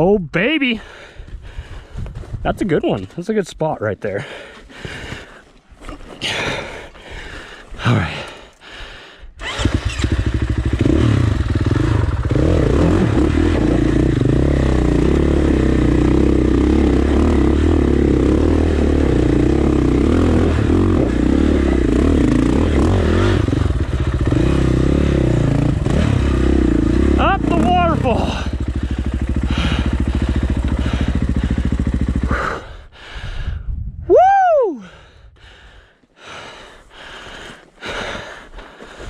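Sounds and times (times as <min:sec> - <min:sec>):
dirt bike engine running: 0:09.4 - 0:32.9.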